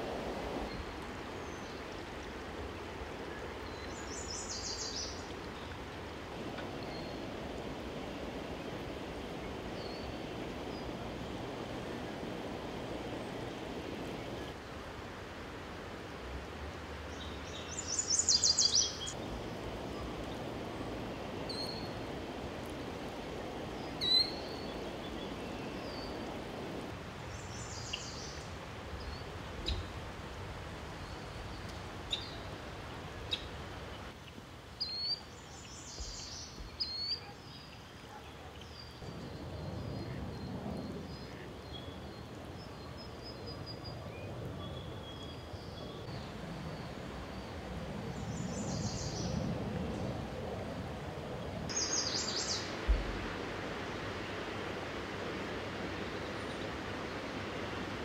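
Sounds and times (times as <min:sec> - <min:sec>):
bird calls and chirps: 0:17.2 - 0:19.2
floodwater rushing over concrete: 0:51.0 - 0:58.0.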